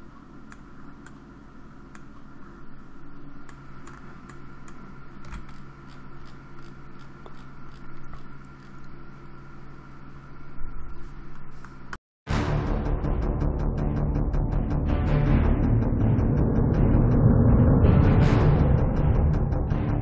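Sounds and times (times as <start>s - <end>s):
background hum and hiss: 0.0s - 12.0s.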